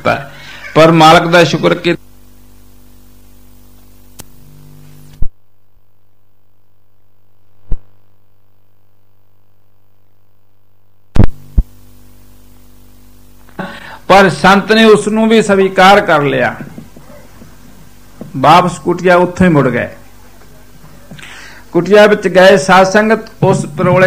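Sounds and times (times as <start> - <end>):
electrical mains hum: 0.0 - 24.0.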